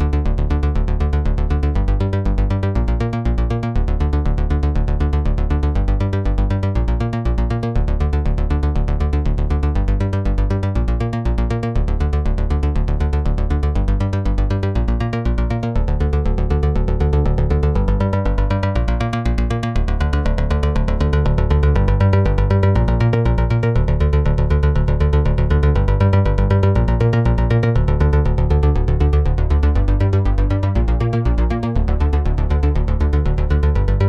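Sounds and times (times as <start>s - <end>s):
heavy bass: 0.0s - 34.0s
electronic synth loop: 17.0s - 34.0s.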